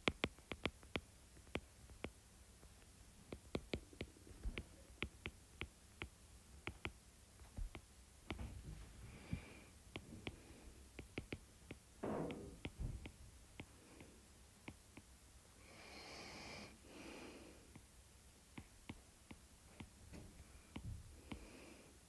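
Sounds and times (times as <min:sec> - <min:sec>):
stylus tapping on glass screen: 0:00.0 - 0:02.2, 0:03.3 - 0:08.5, 0:11.0 - 0:13.7
person breathing: 0:08.9 - 0:10.9, 0:15.6 - 0:17.8, 0:20.4 - 0:22.0.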